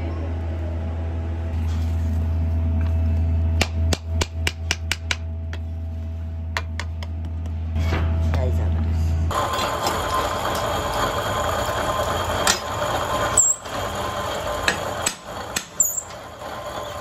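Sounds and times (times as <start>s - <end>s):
steady low hum: 0.0s - 16.8s.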